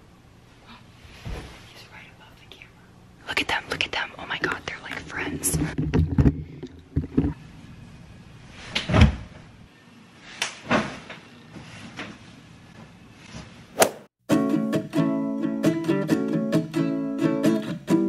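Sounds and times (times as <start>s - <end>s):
hand slaps swatting flies: 10.4s - 10.6s
guitar music: 14.3s - 18.0s.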